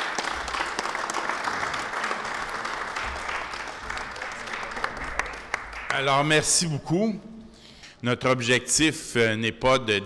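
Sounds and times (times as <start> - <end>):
crowd applauding: 0.0 - 6.5.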